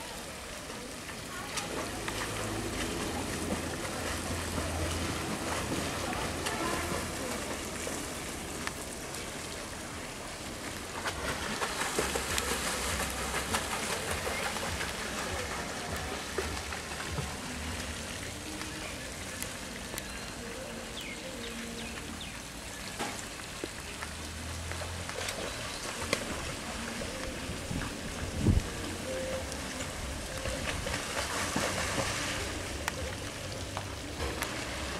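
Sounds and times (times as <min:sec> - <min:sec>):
water splashing in a pool: 0:00.0 - 0:34.9
wind rumble on microphone: 0:27.3 - 0:32.0.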